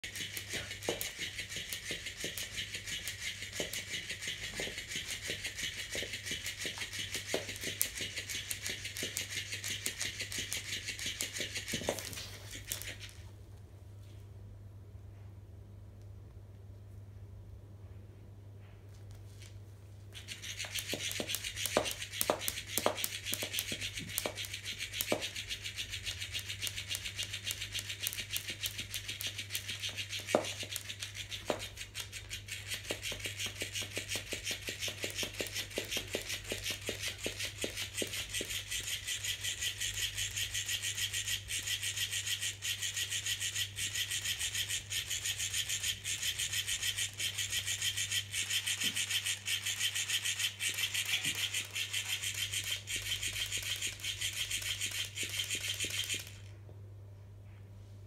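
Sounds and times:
toy tail scraping wooden floor: 0.0s - 13.2s, 20.2s - 56.5s.

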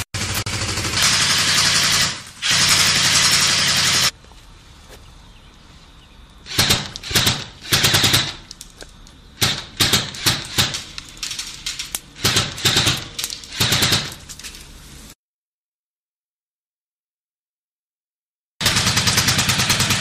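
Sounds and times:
rifle automatic fire bursts: 0.0s - 4.1s, 6.5s - 8.4s, 9.4s - 14.2s, 18.6s - 20.0s.

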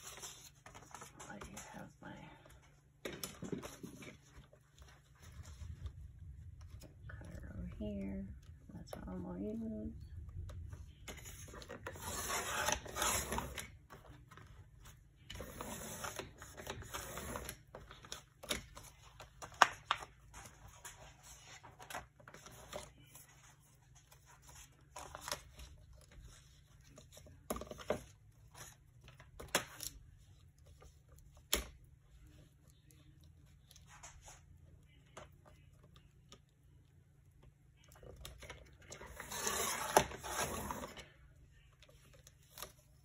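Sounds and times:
paper rustling: 0.0s - 7.0s.

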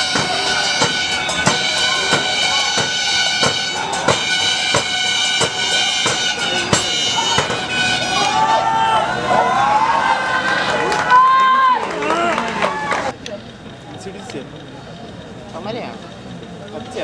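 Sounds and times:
music with driving drumbeat: 0.0s - 8.1s
sustained high tones: 0.0s - 10.4s.

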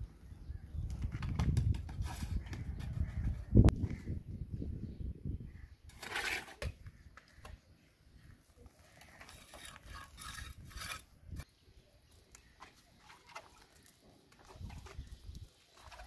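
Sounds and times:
trowel scraping wet mortar: 5.9s - 6.8s, 8.9s - 11.5s.

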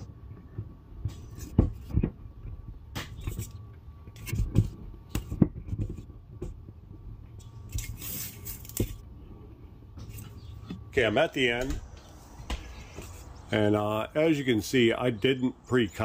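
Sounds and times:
steady low hum: 0.0s - 16.0s
liner peeled off tape: 7.7s - 9.0s.

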